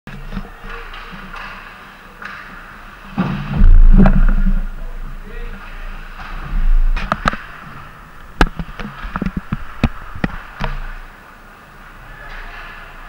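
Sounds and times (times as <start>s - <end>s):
hockey sticks and puck clacking: 0.1s - 3.4s, 8.4s - 11.0s.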